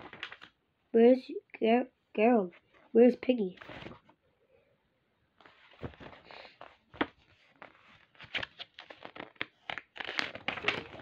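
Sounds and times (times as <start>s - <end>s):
book pages rustling: 0.0s - 0.6s, 3.6s - 4.2s, 5.4s - 11.0s.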